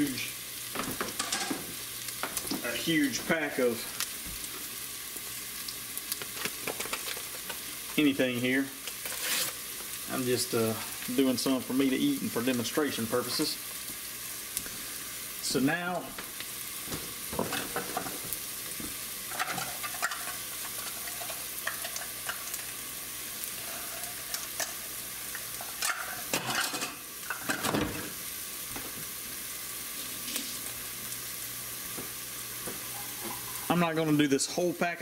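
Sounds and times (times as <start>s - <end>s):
food sizzling in oil: 0.0s - 35.0s.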